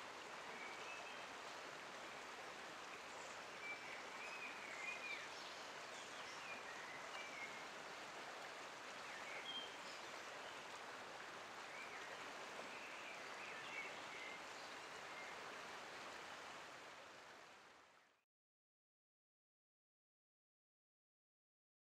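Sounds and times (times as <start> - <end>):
flowing river water hiss: 0.0 - 18.2.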